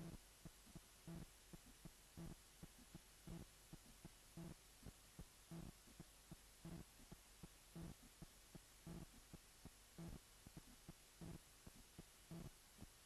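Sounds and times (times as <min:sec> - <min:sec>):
faint low thumping heartbeat: 0:00.0 - 0:13.0.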